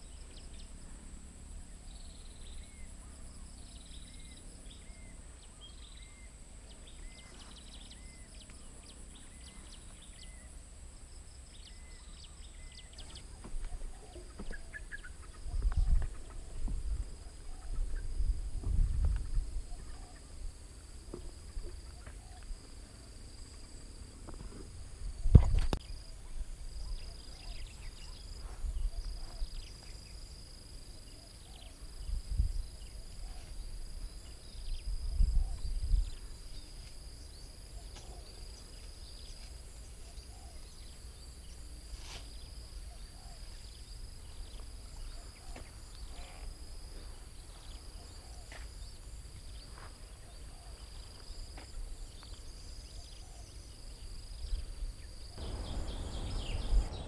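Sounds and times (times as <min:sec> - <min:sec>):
insects chirring: 0:00.0 - 0:57.0
short insect chirps: 0:17.2 - 0:57.0
low rumbles: 0:55.4 - 0:57.0.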